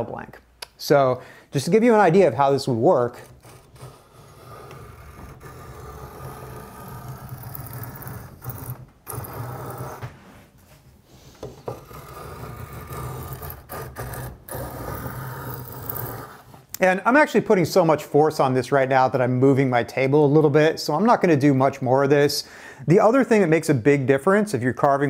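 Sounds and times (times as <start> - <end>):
draw knife scraping wood: 3.1 - 10.1, 11.4 - 16.6.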